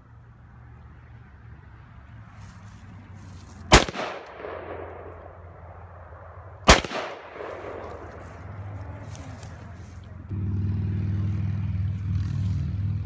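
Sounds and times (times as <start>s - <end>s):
rifle shots with echo: 3.7s - 8.7s.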